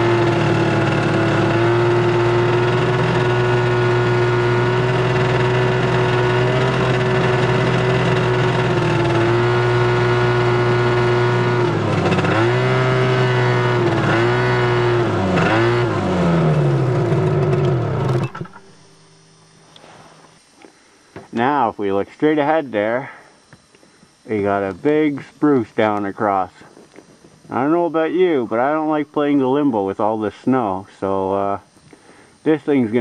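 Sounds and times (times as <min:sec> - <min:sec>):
snowmobile engine running: 0:00.0 - 0:19.1.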